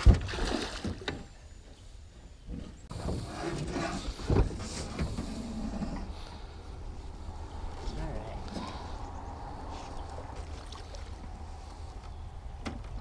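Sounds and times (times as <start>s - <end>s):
fish thrashing and splashing water: 0.0s - 1.1s, 9.9s - 11.4s.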